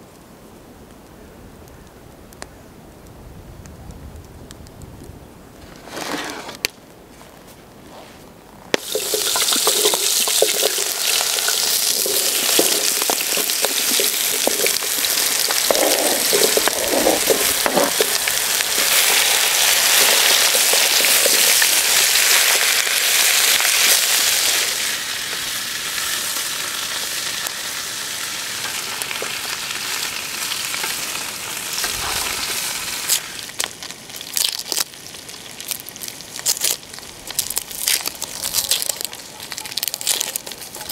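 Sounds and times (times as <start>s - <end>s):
onion skin crackling: 8.7s - 24.9s, 29.0s - 40.9s
potatoes sizzling in oil: 8.7s - 40.9s.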